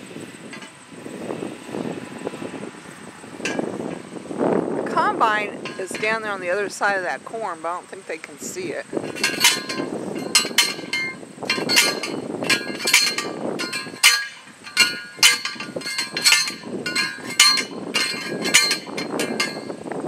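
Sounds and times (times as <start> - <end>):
post driver clanging on metal: 0.5 - 0.8, 3.4 - 4.1, 5.3 - 6.6, 9.0 - 20.0.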